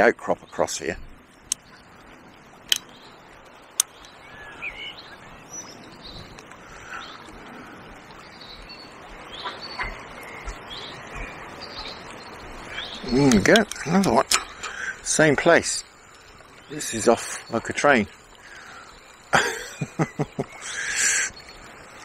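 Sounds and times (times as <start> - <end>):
birds chirping: 0.0 - 22.0
river water rushing: 0.0 - 22.0
sharp clicks: 2.7 - 2.9, 3.8 - 4.2, 13.2 - 15.0.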